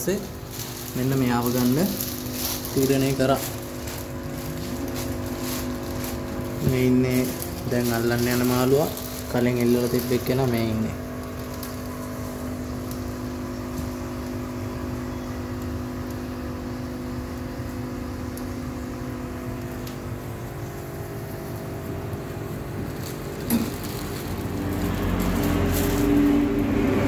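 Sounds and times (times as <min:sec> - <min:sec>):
machine hum: 0:00.0 - 0:27.0
handling noise: 0:00.1 - 0:12.4, 0:20.2 - 0:27.0.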